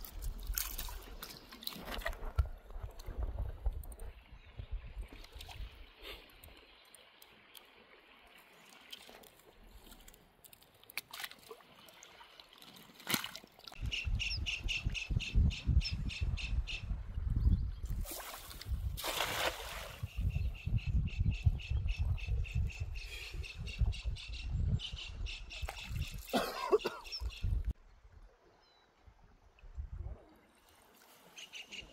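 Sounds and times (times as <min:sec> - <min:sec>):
water splashing and trickling: 0:00.0 - 0:13.9, 0:17.8 - 0:20.3, 0:25.5 - 0:31.8
rush of water: 0:18.0 - 0:20.0.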